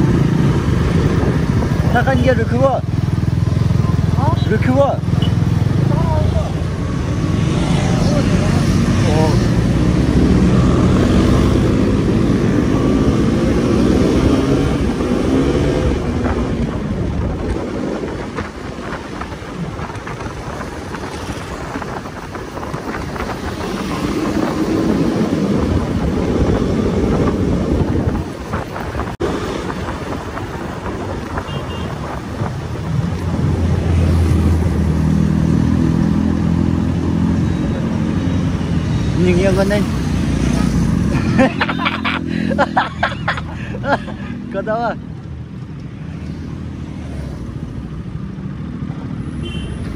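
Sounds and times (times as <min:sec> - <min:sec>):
motorcycle engine speeding up and slowing: 0:00.0 - 0:31.4.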